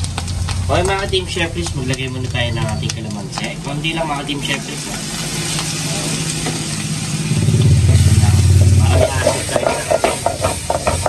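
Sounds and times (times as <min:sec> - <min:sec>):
low engine rumble: 0:00.0 - 0:11.0
mushrooms sizzling in frying pan: 0:00.0 - 0:11.0
spatula scraping pan: 0:04.4 - 0:11.0.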